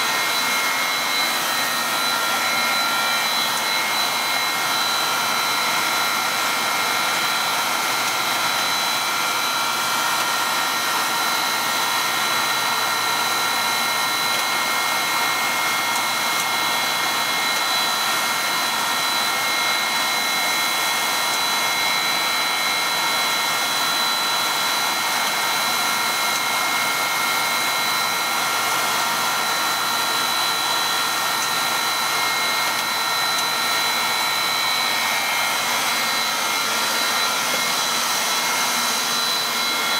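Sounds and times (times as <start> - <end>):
high-pitched whining tones: 0.0 - 9.8, 29.5 - 39.9
machine whirring: 0.0 - 39.9.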